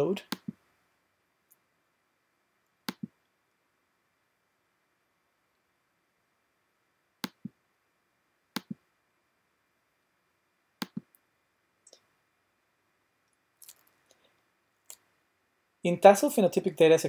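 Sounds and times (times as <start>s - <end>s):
computer mouse double-clicks: 2.8s - 3.1s, 7.2s - 7.6s, 8.5s - 8.8s.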